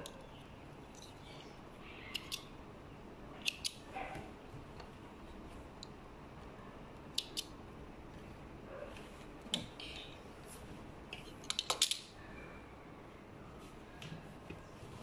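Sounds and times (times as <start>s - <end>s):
thread snips clicking: 2.0s - 2.5s, 3.4s - 3.9s, 7.0s - 7.5s.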